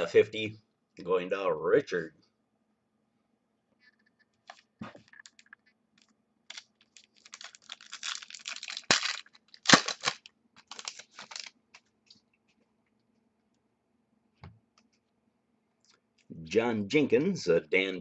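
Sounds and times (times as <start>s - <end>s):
foil wrapper crinkling: 4.5s - 11.6s
foil wrapper tearing: 6.5s - 11.6s.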